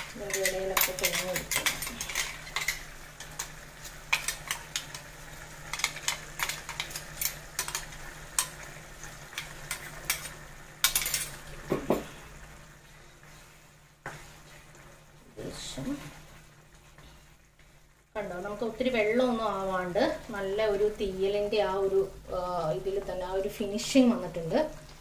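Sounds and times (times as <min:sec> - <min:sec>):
curry sizzling faintly: 0:00.0 - 0:25.0
metal spoon clinking on pot: 0:00.2 - 0:03.4.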